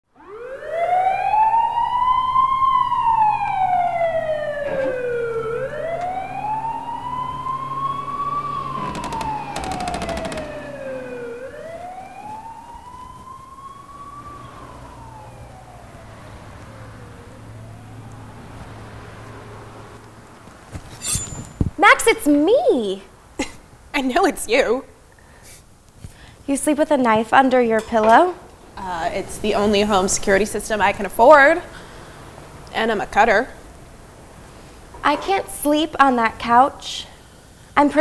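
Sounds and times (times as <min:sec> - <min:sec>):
emergency vehicle siren wailing: 0:00.1 - 0:20.0.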